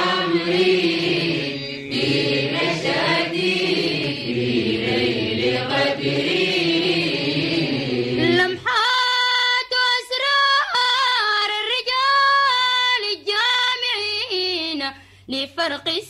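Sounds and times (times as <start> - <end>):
lower voices singing refrain: 0.0 - 8.6.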